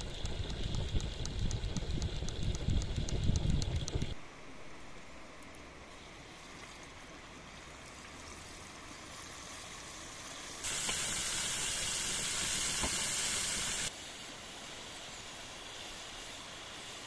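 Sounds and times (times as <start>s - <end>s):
flowing water: 4.2s - 16.8s
burger patties sizzling: 7.7s - 13.9s.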